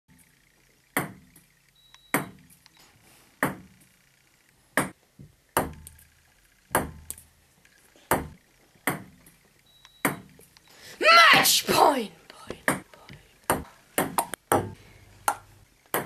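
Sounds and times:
ping-pong ball clicks: 0.9s - 2.6s, 4.8s - 5.0s, 5.6s - 7.3s, 8.1s - 10.4s, 13.5s - 16.0s.

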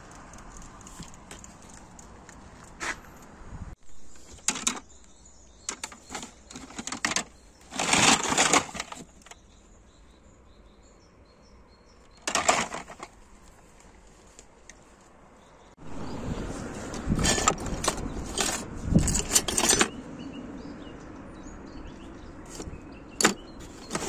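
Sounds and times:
plastic items clattering: 4.1s - 4.8s, 5.7s - 9.4s, 12.2s - 13.2s, 17.2s - 19.9s, 22.5s - 24.0s
plastic bags rustling: 5.7s - 9.3s.

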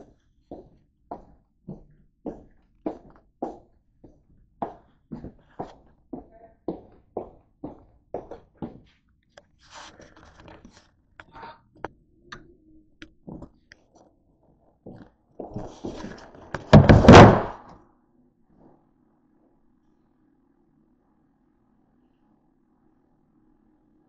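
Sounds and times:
door swinging shut: 16.6s - 17.7s.

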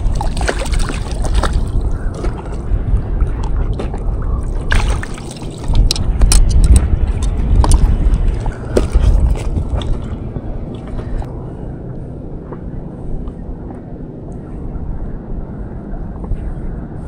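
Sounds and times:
water sloshing and splashing: 0.0s - 11.3s
wind rumble on microphone: 0.0s - 17.0s
clicks and knocks of gear: 5.7s - 10.1s.

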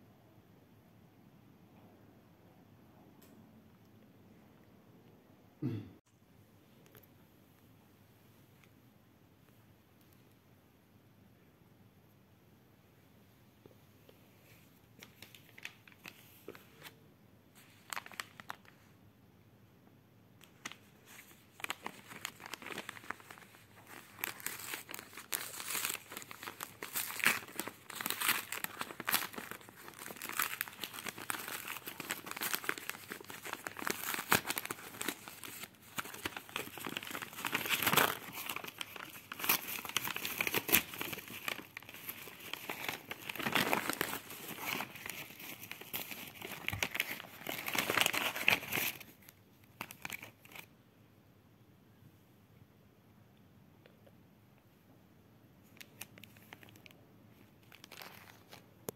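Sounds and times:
package wrapping tearing and crinkling: 17.8s - 18.7s, 20.4s - 50.7s, 55.8s - 56.9s, 57.6s - 58.6s.

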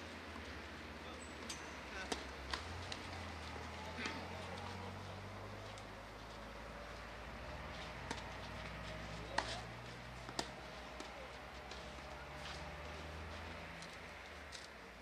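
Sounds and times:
tennis ball struck by racket: 2.0s - 3.0s, 9.3s - 11.9s.

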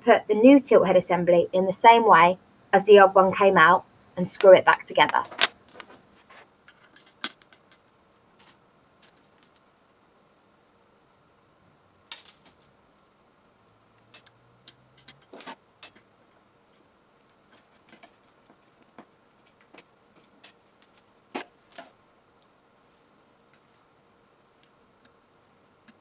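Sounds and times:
screwdriver and metal parts tapping: 6.7s - 7.9s, 14.1s - 16.0s.

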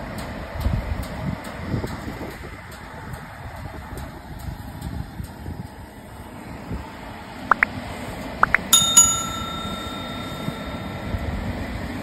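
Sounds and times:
outdoor rumble and wind: 0.0s - 12.0s
rising click pops: 8.4s - 8.8s
notification bell ringing: 8.4s - 11.4s.

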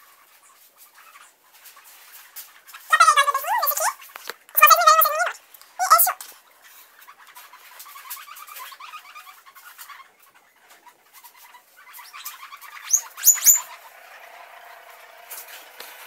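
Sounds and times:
guinea pigs squealing: 2.6s - 6.2s, 7.0s - 14.0s.

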